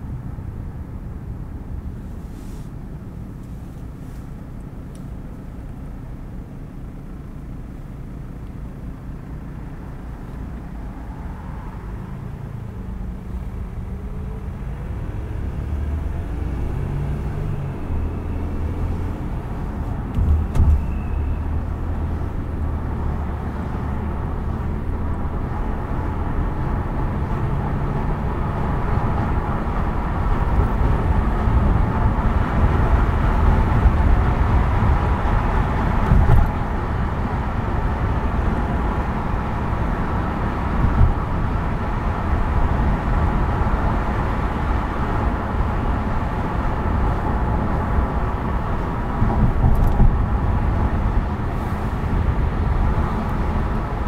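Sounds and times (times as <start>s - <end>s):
car engine hum: 0.0s - 54.0s
tyre and road noise: 0.0s - 54.0s
short thump: 20.1s - 21.0s.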